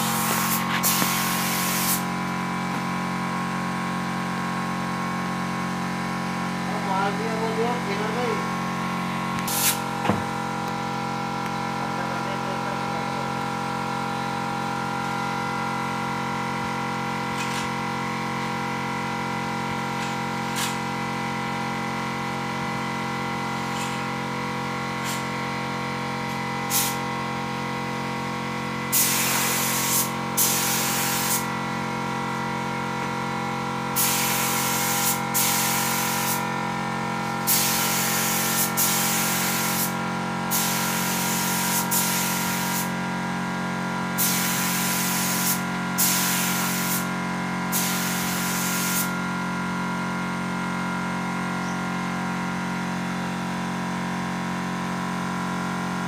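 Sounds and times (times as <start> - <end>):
spray gun hissing bursts: 0.0 - 2.2, 9.4 - 9.9, 26.7 - 27.0, 28.9 - 31.5, 33.9 - 36.5, 37.4 - 43.0, 44.2 - 49.2
air compressor humming: 0.0 - 56.0.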